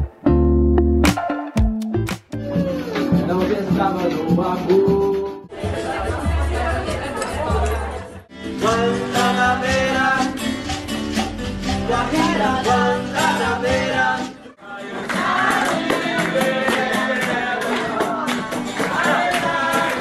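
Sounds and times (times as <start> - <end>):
music with quick steady beat: 0.0 - 7.8
acoustic guitar: 0.0 - 20.0
person singing: 2.3 - 6.7, 8.5 - 10.5, 11.6 - 20.0.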